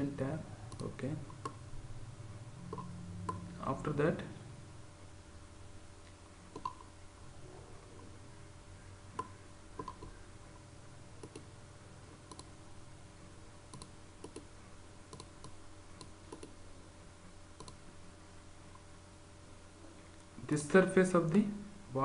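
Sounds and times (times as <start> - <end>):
faint steady hum: 0.0 - 22.0
computer mouse clicking: 0.7 - 1.6, 2.7 - 3.4, 6.5 - 6.9, 9.2 - 10.2, 11.2 - 11.5, 12.2 - 12.5, 13.7 - 14.5, 15.1 - 16.6, 17.6 - 17.8.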